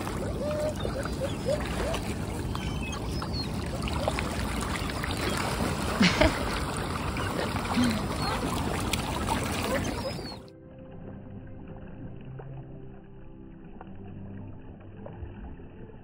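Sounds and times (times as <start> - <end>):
bird calls: 0.0 - 10.5
water splashing and churning: 0.0 - 16.0.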